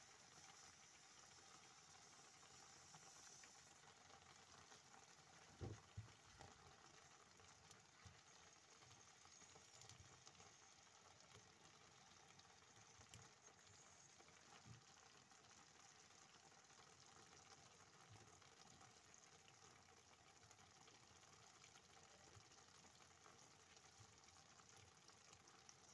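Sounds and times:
stew simmering in pot: 0:00.0 - 0:25.9.

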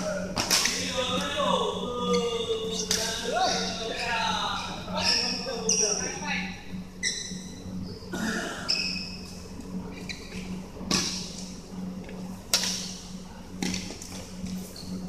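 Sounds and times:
steady low hum: 0:00.0 - 0:15.0
racket hitting shuttlecock: 0:00.4 - 0:00.8
sneakers squeaking on floor: 0:04.0 - 0:06.2, 0:07.0 - 0:07.5, 0:09.9 - 0:11.0.

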